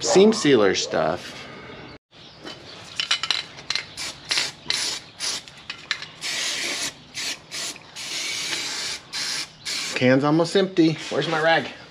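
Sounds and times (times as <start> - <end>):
aerosol spray hissing bursts: 6.2 - 10.0.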